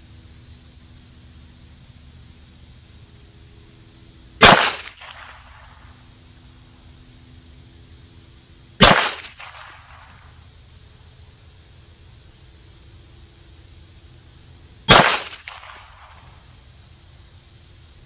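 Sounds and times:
pistol shots with echo: 0:04.4 - 0:05.4, 0:08.8 - 0:10.0, 0:14.9 - 0:16.2.

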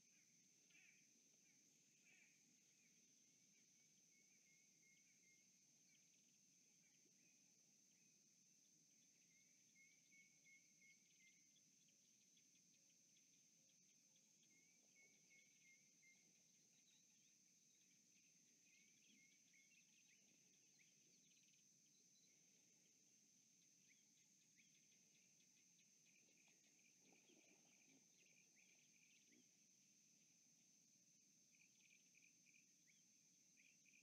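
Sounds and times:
bird chirping: 0:09.0 - 0:22.8, 0:23.6 - 0:29.7.

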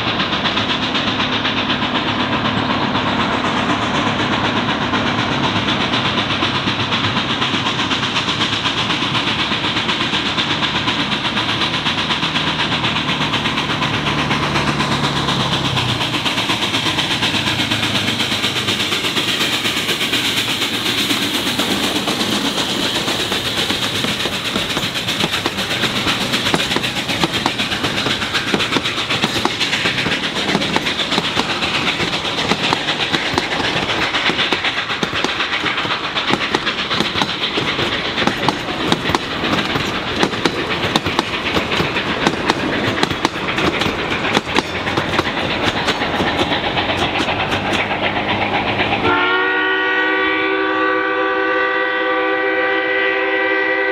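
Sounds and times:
wheels clicking over rail joints: 0:00.0 - 0:49.3
passenger coaches rolling by: 0:00.0 - 0:53.9
steam locomotive passing: 0:00.0 - 0:53.9.

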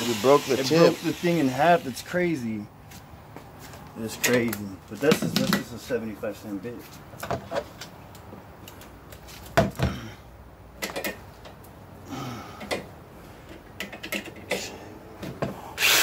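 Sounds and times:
jigsaw cutting: 0:15.8 - 0:16.0.

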